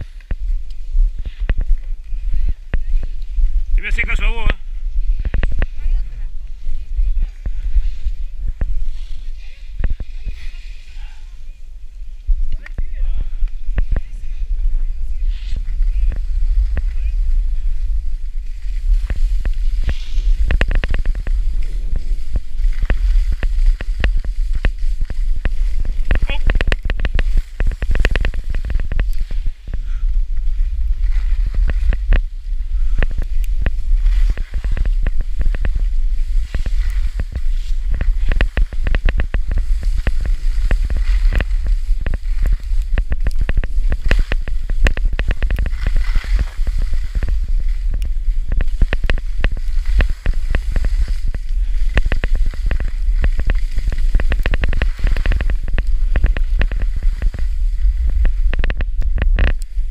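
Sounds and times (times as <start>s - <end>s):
skis scraping over packed snow: 0.0s - 59.9s
wind buffeting microphone: 0.0s - 59.9s.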